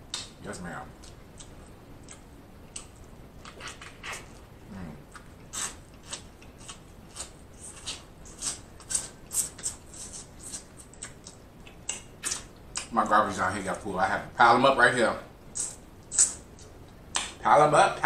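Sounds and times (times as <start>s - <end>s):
wet mouth smacks and chewing: 1.0s - 4.4s, 5.1s - 12.9s.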